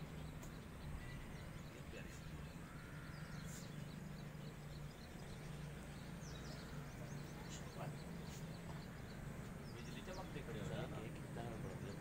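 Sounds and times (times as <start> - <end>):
small birds chirping: 0.0 - 12.0
steady low hum: 0.0 - 12.0.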